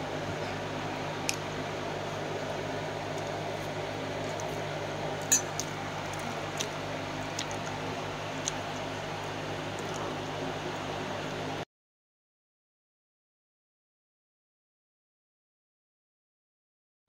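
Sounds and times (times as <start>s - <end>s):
gas stove burner running: 0.0s - 11.6s.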